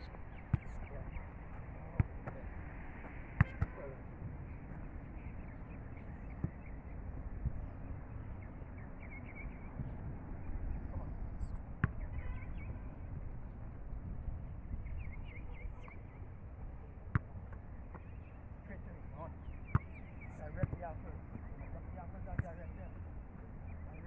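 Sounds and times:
small birds chirping: 0:00.0 - 0:02.0, 0:04.5 - 0:12.9, 0:14.8 - 0:16.3, 0:17.9 - 0:24.0
football being struck: 0:00.5 - 0:00.8, 0:03.4 - 0:03.8
wind rumbling on microphone: 0:09.4 - 0:15.9.

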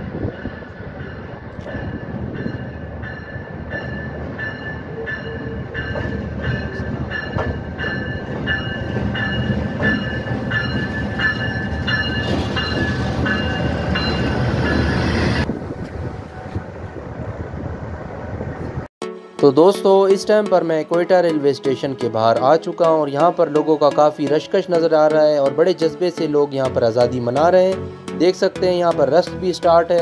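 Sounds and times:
diesel locomotive engine rumble: 0:00.0 - 0:18.9
pulsing metallic ringing: 0:00.3 - 0:15.5.

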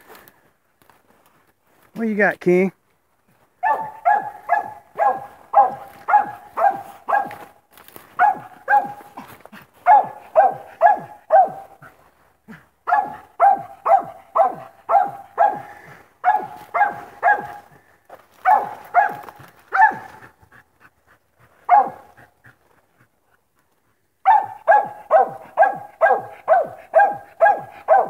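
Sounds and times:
dog barking: 0:03.6 - 0:12.0, 0:12.8 - 0:17.8, 0:18.4 - 0:20.4, 0:21.6 - 0:22.3, 0:24.2 - 0:28.0.

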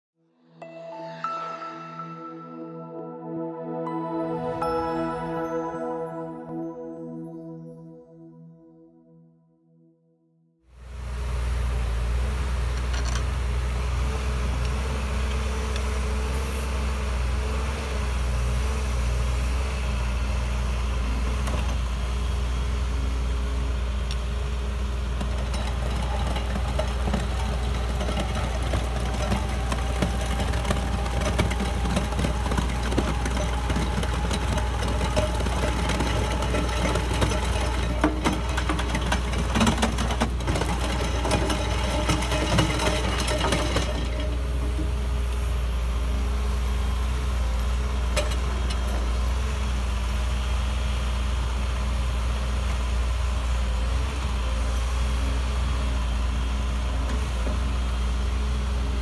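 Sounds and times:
diesel excavator engine running: 0:10.8 - 0:59.0
soil and stones rattling in screen: 0:25.1 - 0:45.2.

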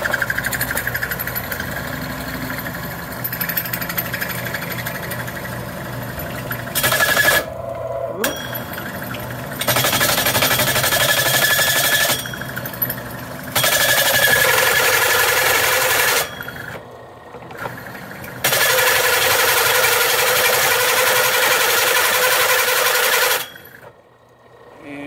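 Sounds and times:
hole saw cutting steel tubing: 0:06.4 - 0:07.6, 0:08.2 - 0:12.9, 0:13.5 - 0:16.8, 0:17.7 - 0:23.8.

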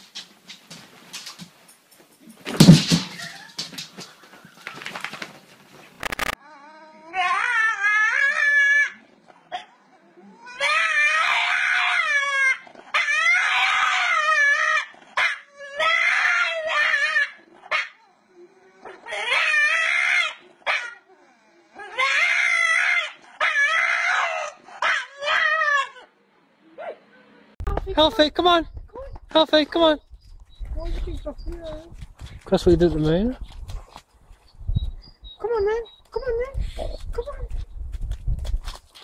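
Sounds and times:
dog howling: 0:06.4 - 0:09.0, 0:10.1 - 0:21.1, 0:21.8 - 0:26.1.

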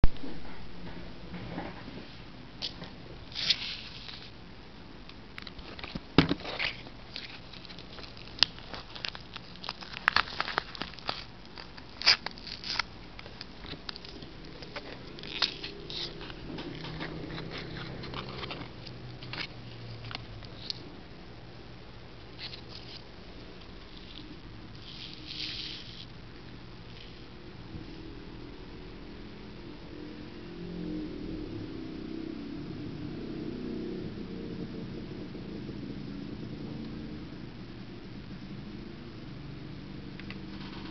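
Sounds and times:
paper packet crinkling and tearing: 0:03.3 - 0:04.3, 0:05.4 - 0:20.8.

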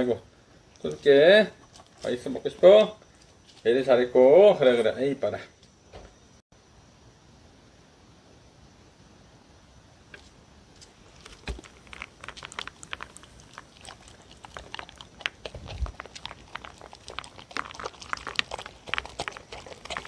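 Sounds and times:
dogs crunching dry food: 0:00.7 - 0:03.8, 0:11.0 - 0:20.0.

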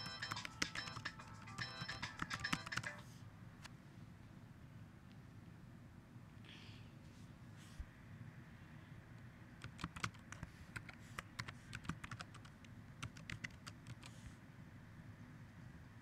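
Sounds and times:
low steady hiss: 0:03.0 - 0:16.0
keyboard key clicks: 0:09.6 - 0:14.2.

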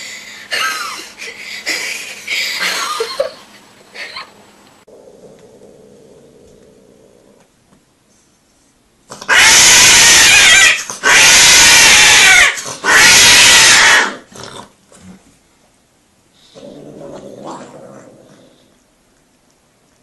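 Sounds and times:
cat calling loudly: 0:09.2 - 0:14.2.

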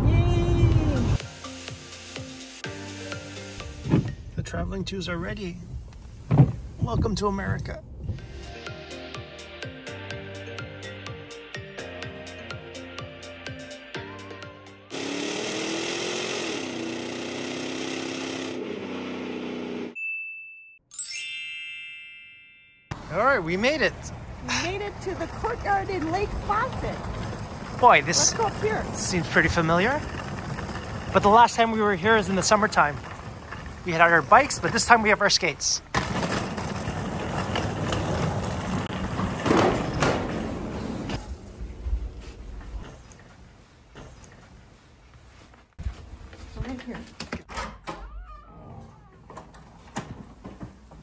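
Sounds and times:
buzzing engine-like sound effect: 0:14.9 - 0:20.0
outdoor rumble: 0:23.9 - 0:35.0, 0:35.8 - 0:44.4.

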